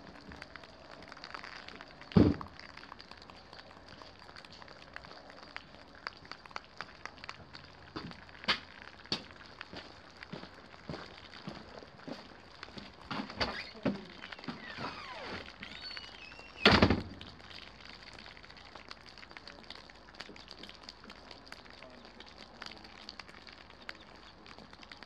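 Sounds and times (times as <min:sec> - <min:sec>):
rain pattering: 0:00.0 - 0:25.0
wind: 0:00.0 - 0:25.0
loud thump: 0:02.2 - 0:02.4, 0:16.6 - 0:17.2.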